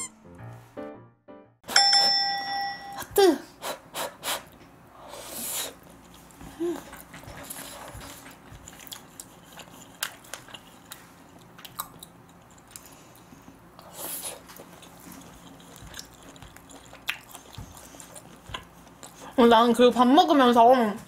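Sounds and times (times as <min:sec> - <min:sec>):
close chewing and biting: 0:05.7 - 0:19.4.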